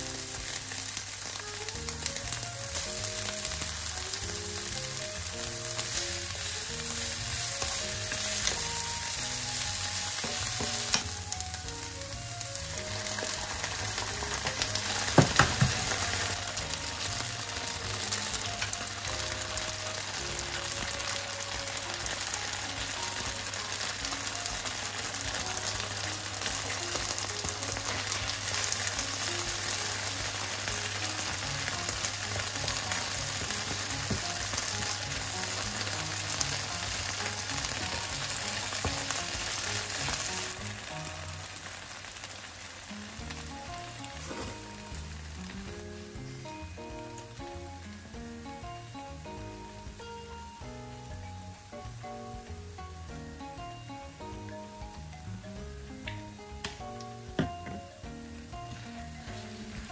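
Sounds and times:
food sizzling in frying pan: 0.0s - 59.9s
spatula knocking on pan: 14.6s - 16.0s, 57.3s - 58.0s.

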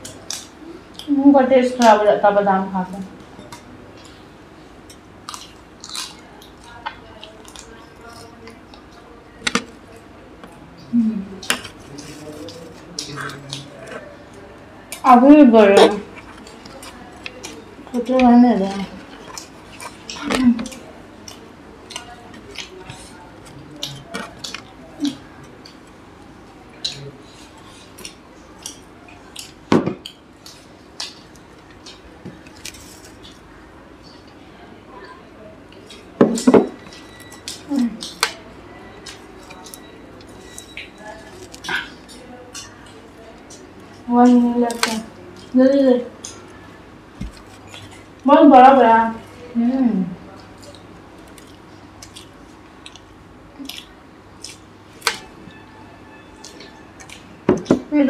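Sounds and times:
chewing and wet mouth noises: 3.4s - 9.2s, 9.8s - 15.0s, 15.7s - 34.4s, 36.8s - 45.5s, 46.1s - 46.6s, 50.4s - 57.7s.

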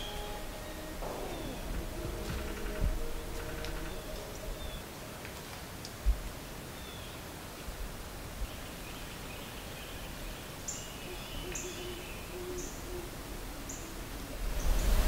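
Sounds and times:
birds calling: 0.0s - 5.1s
background hiss: 0.0s - 15.0s
low thump: 1.0s - 3.9s.

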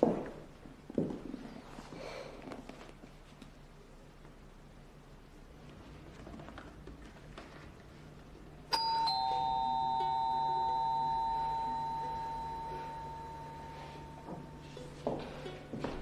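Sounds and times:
two-tone doorbell chime: 8.7s - 15.8s.

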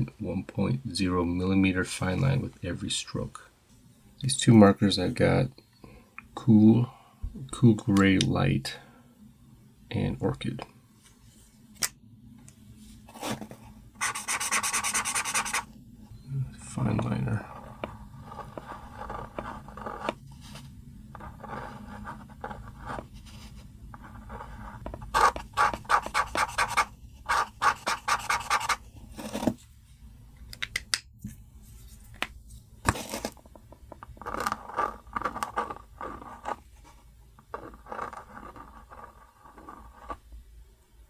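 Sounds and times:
marker scribbling on cardboard: 14.0s - 15.7s, 17.6s - 20.6s, 21.2s - 29.5s, 34.3s - 40.2s.

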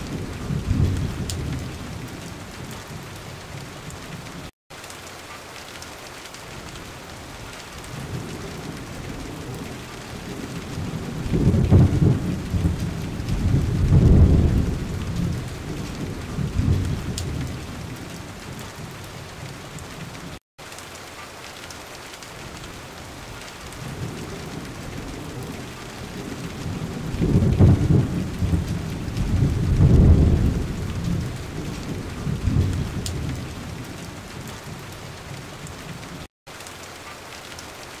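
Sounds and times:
low thunder rolls: 0.0s - 4.3s, 8.0s - 20.1s, 23.8s - 36.2s
steady rain: 0.0s - 38.0s.

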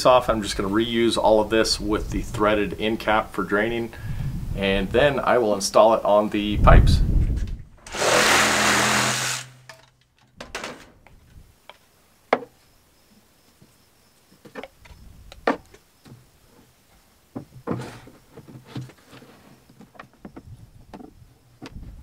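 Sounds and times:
loud rushing burst: 7.9s - 9.6s.

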